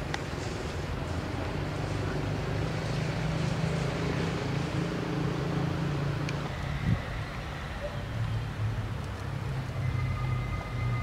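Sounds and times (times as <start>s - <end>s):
wind noise: 3.1s - 11.0s.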